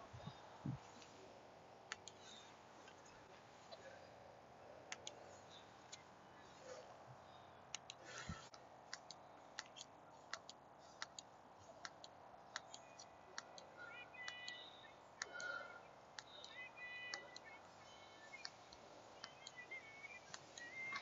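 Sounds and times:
faint sharp clicks: 1.9s - 2.2s, 4.9s - 5.2s.

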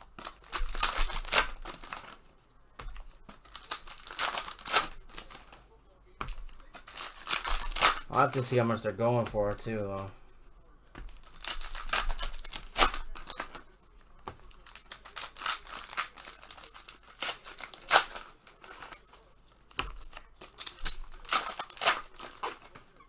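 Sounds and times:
card packs being torn open: 0.0s - 2.2s, 3.0s - 5.6s, 6.4s - 8.6s, 11.1s - 13.7s, 14.5s - 23.0s
plastic wrappers crinkling: 0.0s - 10.1s, 11.1s - 23.0s.

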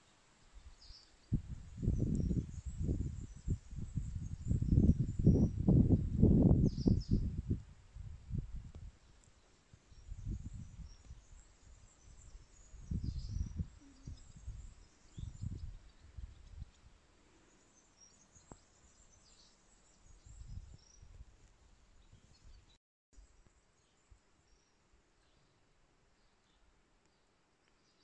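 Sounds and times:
wind buffeting microphone: 1.3s - 9.0s, 9.9s - 16.9s, 20.2s - 21.4s
faint bird chirps: 9.0s - 21.2s.

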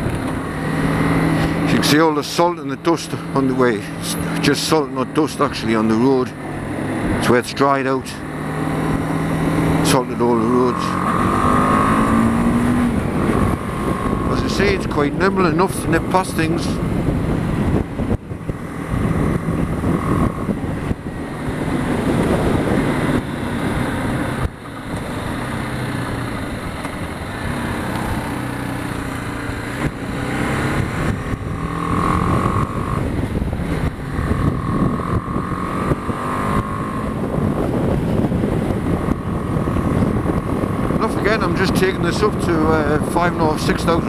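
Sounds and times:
motorcycle engine running: 0.0s - 44.0s
wind noise on microphone: 11.0s - 25.5s, 26.2s - 44.0s.

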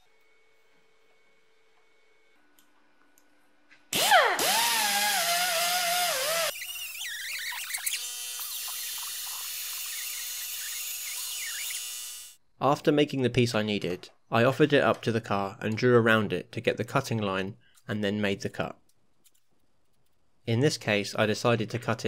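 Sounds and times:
sander grinding rust off steel: 4.0s - 12.4s.

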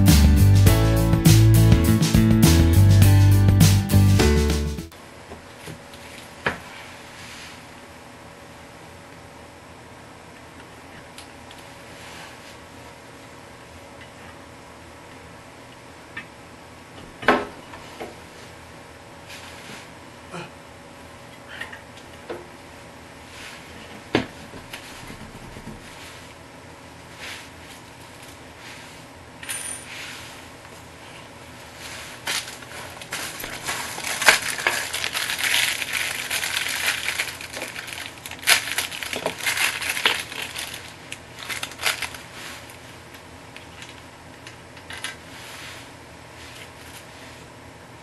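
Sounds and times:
gloved hands rustling: 31.6s - 42.8s.

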